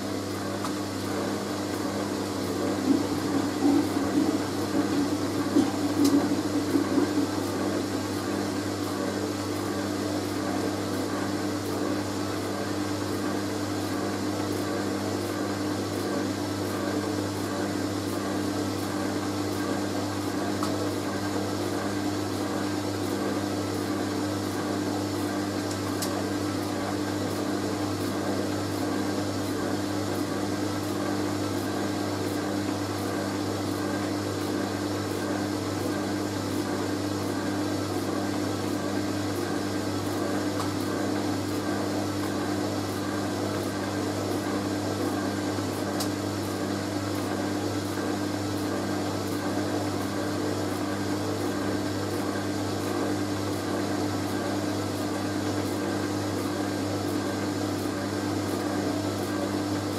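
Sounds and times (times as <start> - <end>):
washing machine motor hum: 0.0 - 59.9.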